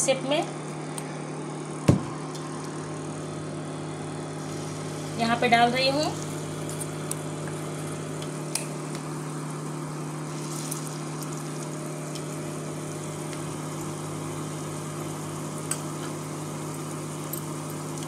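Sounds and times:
induction cooktop hum: 0.0s - 18.0s
fritters sizzling in hot oil: 4.3s - 18.0s.

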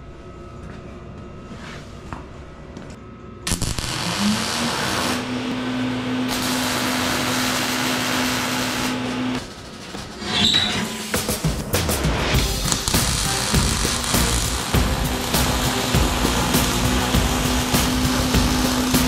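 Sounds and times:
angle grinder grinding metal: 3.5s - 9.4s, 12.4s - 19.0s.

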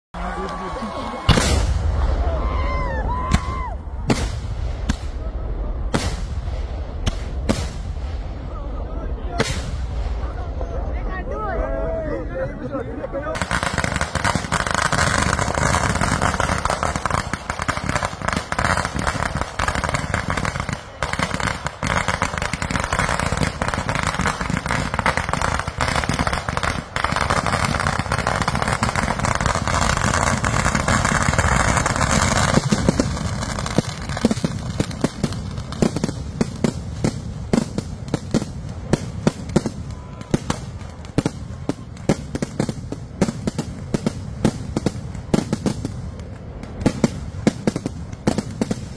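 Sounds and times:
ground fireworks crackling: 0.2s - 48.9s
firework bangs and pops: 1.3s - 2.1s, 3.2s - 5.2s, 5.8s - 8.4s, 9.4s - 10.3s, 13.4s - 48.9s.

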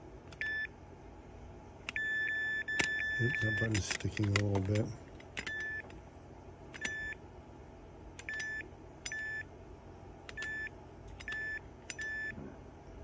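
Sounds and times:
keypad button clicks: 2.7s - 5.9s, 10.3s - 12.3s.

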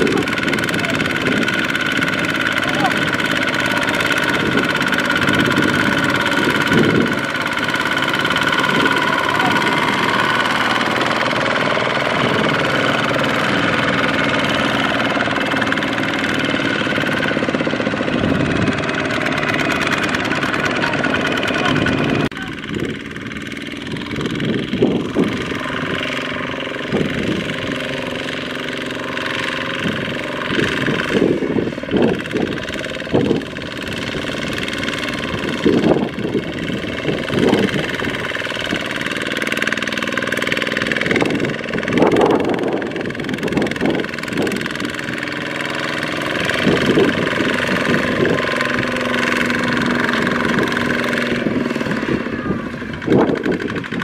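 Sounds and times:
diesel engine running under load: 0.0s - 54.0s.

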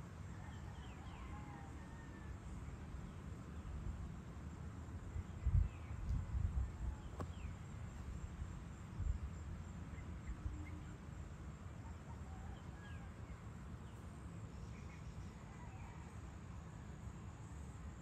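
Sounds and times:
wind rumble on microphone: 5.0s - 10.9s.

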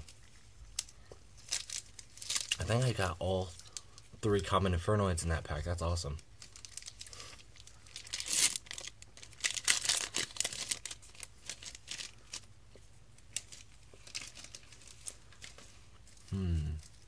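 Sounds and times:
foil wrapper crinkling and tearing: 0.0s - 4.0s, 6.4s - 12.5s, 13.2s - 17.0s.

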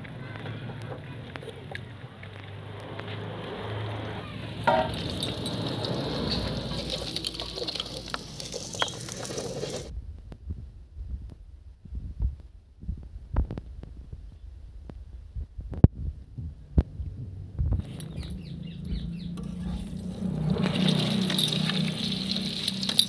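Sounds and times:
handling noises: 4.5s - 9.9s, 19.3s - 23.0s
wok sizzling with crackles: 5.8s - 9.9s, 20.6s - 23.0s.

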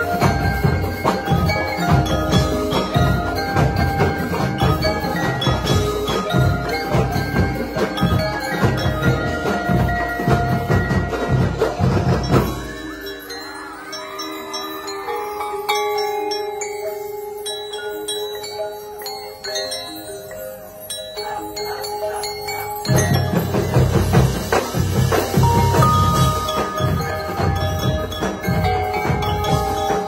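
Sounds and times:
driving drum beat: 0.0s - 15.0s, 21.3s - 30.0s
marimbas and mallet percussion: 0.0s - 30.0s
ringing bell tones: 0.0s - 30.0s.

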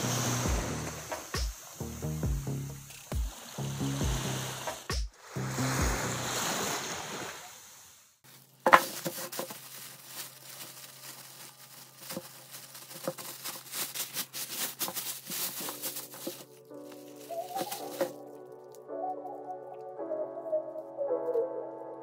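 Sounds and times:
music: 0.0s - 6.4s, 15.2s - 22.0s
surf on rocky shore: 3.2s - 8.0s
plastic bag crinkling: 8.2s - 18.8s.

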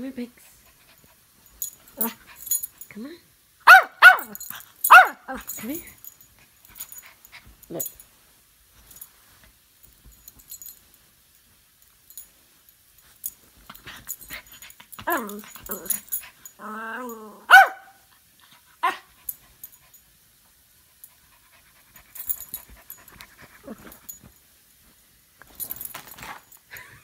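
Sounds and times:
dog barking: 3.6s - 5.3s, 17.5s - 18.0s
dog yipping: 3.7s - 5.2s, 17.5s - 18.0s
dog growling: 16.6s - 17.5s.

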